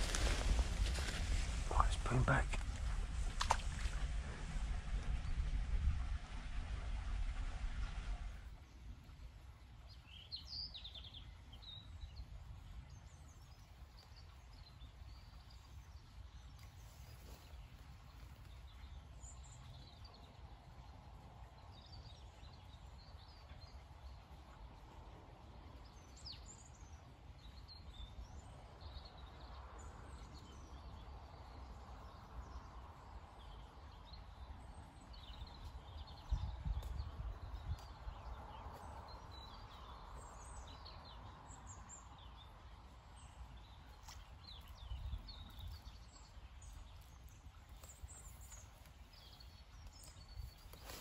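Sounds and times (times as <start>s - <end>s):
small birds chirping: 0.0s - 7.0s, 9.8s - 51.0s
low steady rumble: 0.0s - 9.9s.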